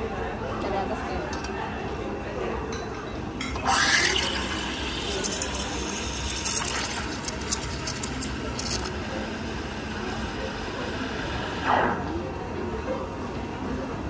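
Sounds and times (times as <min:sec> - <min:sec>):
steam wand steaming milk: 0:03.6 - 0:08.9.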